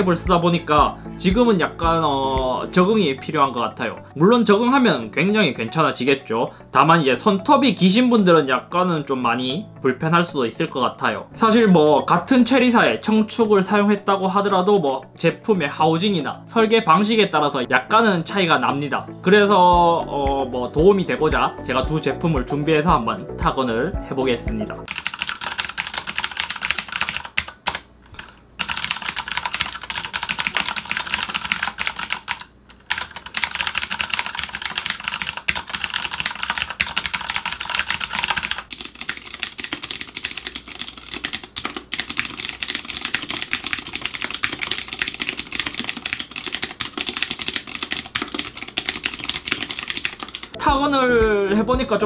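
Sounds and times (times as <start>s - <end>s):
fast typing on clicky keyboard: 24.8s - 27.9s, 28.6s - 50.6s.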